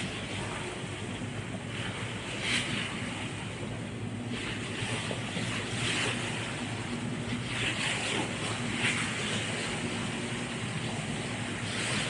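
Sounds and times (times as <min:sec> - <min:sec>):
ferry engine humming: 0:00.0 - 0:12.0
water churning along hull: 0:00.0 - 0:12.0.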